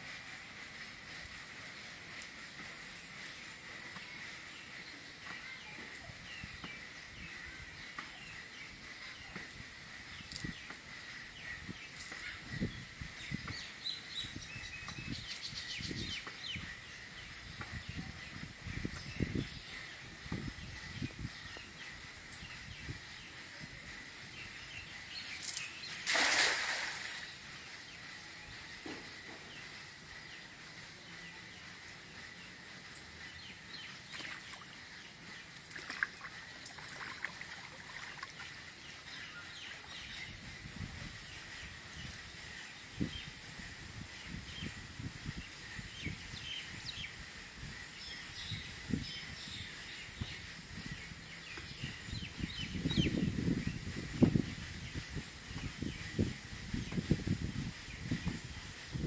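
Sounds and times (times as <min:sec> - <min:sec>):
net splashing on water: 0:26.0 - 0:27.3
water sloshing from wading: 0:26.0 - 0:27.4, 0:35.6 - 0:38.5.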